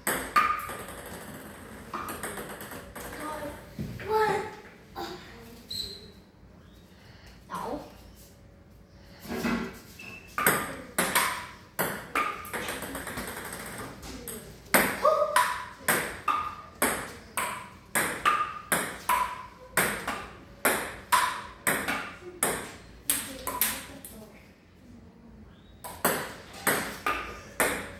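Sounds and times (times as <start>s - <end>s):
ping-pong ball bouncing on paddles: 0.0s - 3.5s, 10.3s - 24.1s, 25.8s - 27.9s.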